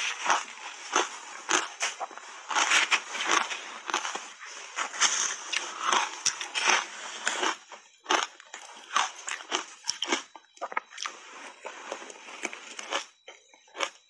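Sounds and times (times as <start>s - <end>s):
shaved ice crunching: 0.0s - 13.1s.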